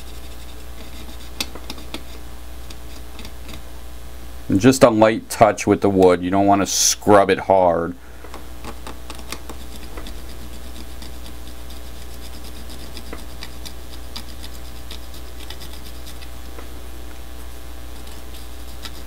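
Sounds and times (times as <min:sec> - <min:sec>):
scratching ticks on plastic: 0:00.1 - 0:03.7, 0:08.6 - 0:16.7, 0:18.0 - 0:19.0.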